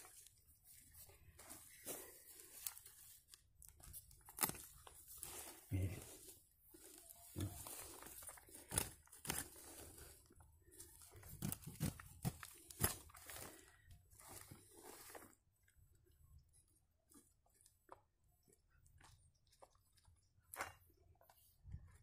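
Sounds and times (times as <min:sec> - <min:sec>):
metal blade digging in dry soil: 0:07.3 - 0:10.2.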